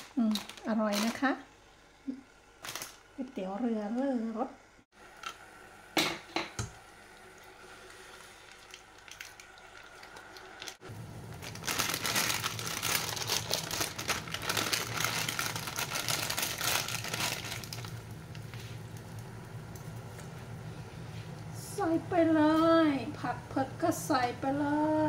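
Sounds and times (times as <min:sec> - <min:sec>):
plastic bag crinkling: 0:00.0 - 0:01.3, 0:02.6 - 0:03.2, 0:08.2 - 0:19.2
plastic sachet crackling: 0:00.0 - 0:01.3, 0:02.6 - 0:03.1, 0:08.4 - 0:19.2
water boiling hard: 0:00.0 - 0:20.9.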